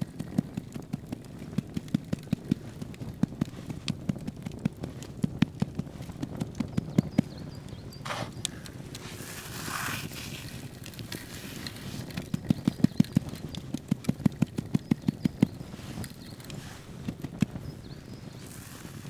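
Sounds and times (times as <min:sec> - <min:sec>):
hands patting meat: 0:00.0 - 0:17.8
breadcrumbs rustling: 0:08.0 - 0:17.6, 0:18.3 - 0:19.0.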